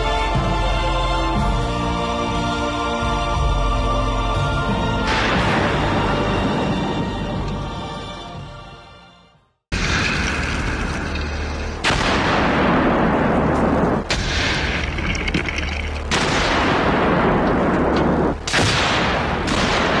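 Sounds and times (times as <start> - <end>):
loud explosions with rushing roar: 9.7 - 15.4, 16.1 - 20.0.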